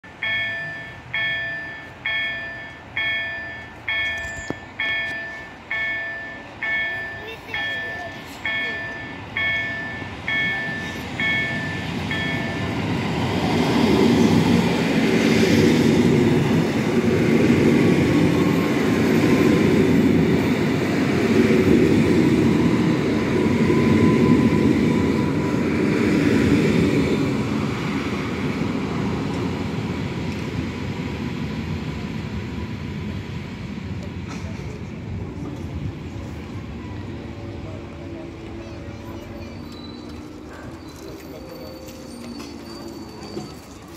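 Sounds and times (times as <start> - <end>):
level crossing bell dinging: 0.1 - 12.9
train wheels rumbling on rails: 0.1 - 43.9.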